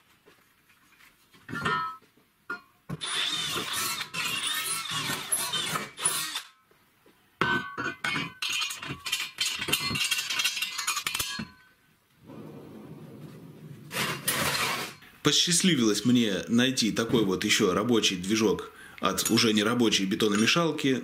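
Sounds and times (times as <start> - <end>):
drill press boring steel: 3.0 - 6.5
steel parts clinking: 7.7 - 11.7.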